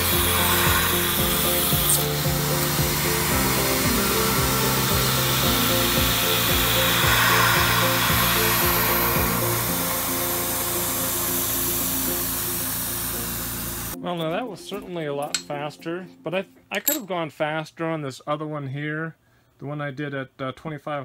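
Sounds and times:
milling machine cutting metal: 0:00.0 - 0:14.0
background music with steady beat: 0:00.0 - 0:17.1.

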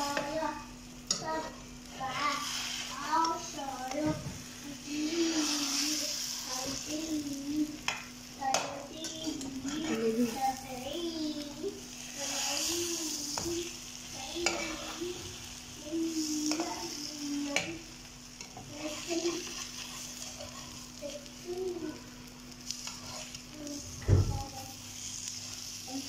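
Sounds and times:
egg sizzling in a pan: 0:00.0 - 0:26.0
spatula scraping and tapping pan: 0:07.8 - 0:10.0, 0:14.3 - 0:15.0, 0:18.4 - 0:20.9.

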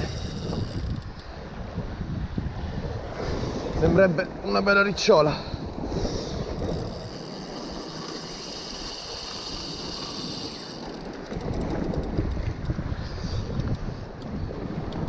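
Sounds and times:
fishing reel clicking: 0:00.0 - 0:01.2, 0:06.0 - 0:12.7
wind hissing: 0:00.0 - 0:01.6, 0:02.8 - 0:04.1, 0:05.6 - 0:11.6
wind rumble on microphone: 0:00.0 - 0:15.0.

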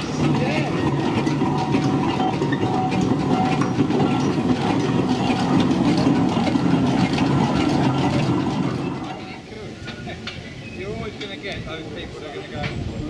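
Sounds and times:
rapid clatter of gearing: 0:00.0 - 0:09.4
steam traction engine driving past: 0:00.0 - 0:12.5.

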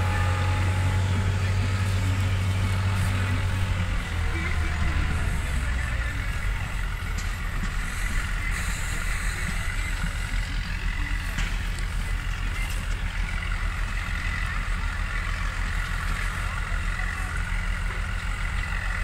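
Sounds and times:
tractor engine rumbling: 0:00.0 - 0:19.0.

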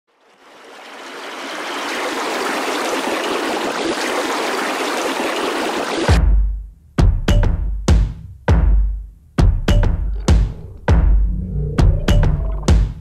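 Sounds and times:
stream water rushing: 0:00.1 - 0:06.2
deep drum hit: 0:09.7 - 0:12.9.

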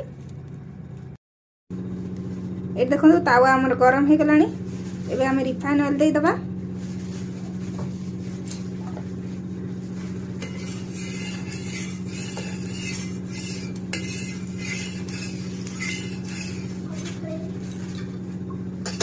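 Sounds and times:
steady low hum: 0:00.0 - 0:19.0
metal spatula scraping hot griddle: 0:10.3 - 0:17.4.

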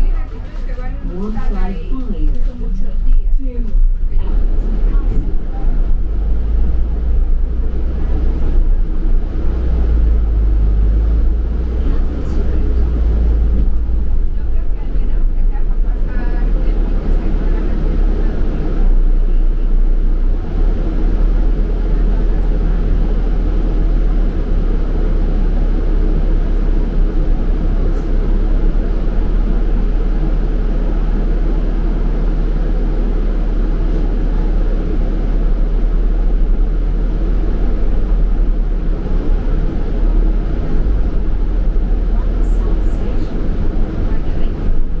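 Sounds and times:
bus engine rumble: 0:00.0 - 0:45.0.

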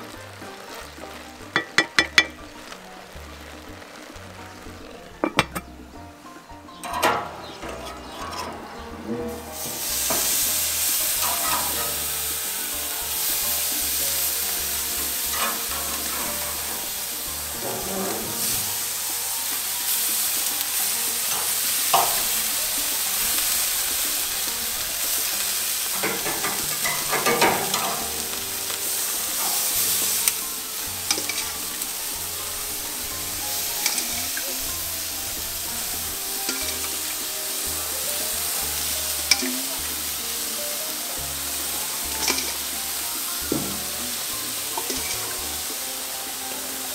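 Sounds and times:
chicken sizzling on a grill: 0:00.0 - 0:46.9
tongs clicking against grill: 0:20.6 - 0:22.6, 0:25.3 - 0:30.4, 0:33.6 - 0:34.5, 0:39.3 - 0:39.7.

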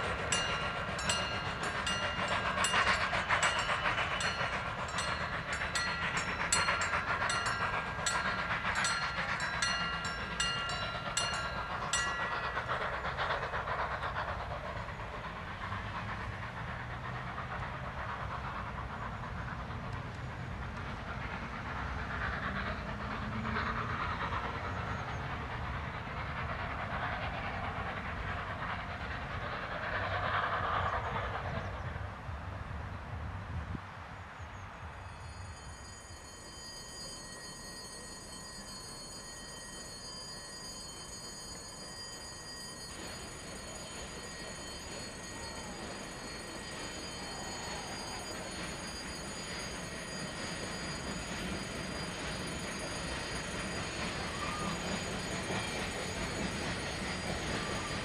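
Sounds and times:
high ringing tones: 0:00.0 - 0:13.0, 0:35.0 - 0:58.0
train wheels clicking: 0:00.0 - 0:31.9, 0:35.2 - 0:58.0
train rumbling: 0:00.0 - 0:58.0.

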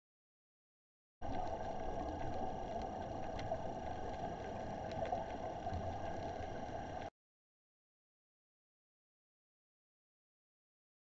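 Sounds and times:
faint clicks: 0:01.2 - 0:07.1
muffled underwater rushing: 0:01.2 - 0:07.1.

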